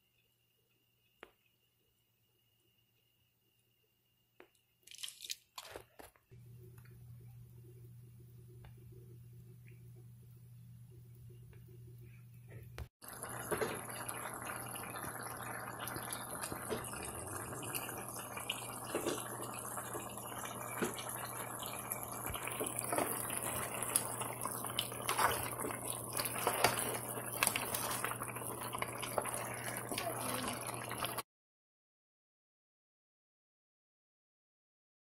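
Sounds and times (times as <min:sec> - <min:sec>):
stew simmering and bubbling: 0:04.4 - 0:31.2.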